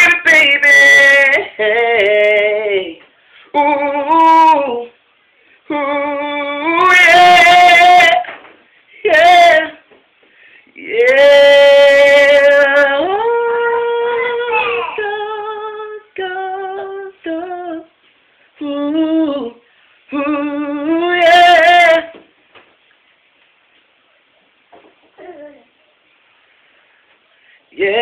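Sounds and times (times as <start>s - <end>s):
man singing unaccompanied: 0.0s - 5.0s, 5.7s - 10.0s, 10.7s - 18.0s, 18.6s - 22.2s, 27.7s - 28.0s.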